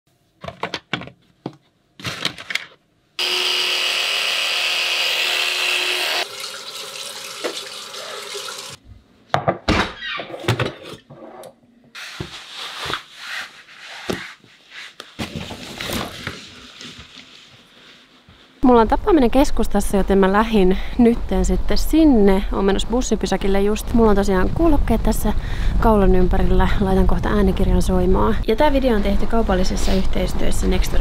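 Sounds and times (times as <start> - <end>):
handling knocks and clicks: 0.4 - 2.8
tap running into sink: 7.2 - 7.8.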